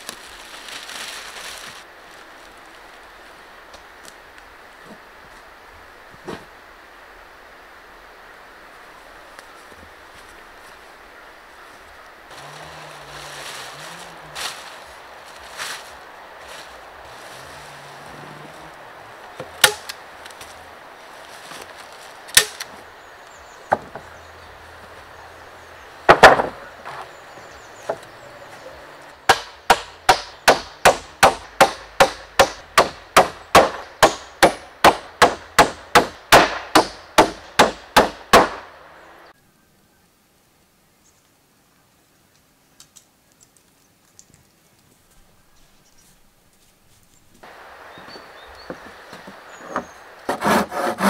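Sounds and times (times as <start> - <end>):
wooden planks knocking: 23.7 - 24.1, 26.1 - 27.1
hammer striking nails: 29.3 - 38.6.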